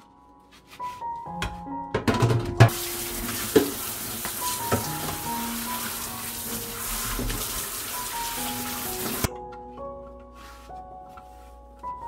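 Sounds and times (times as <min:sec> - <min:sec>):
soft background music: 0:00.0 - 0:12.0
faucet running into sink: 0:02.7 - 0:09.3.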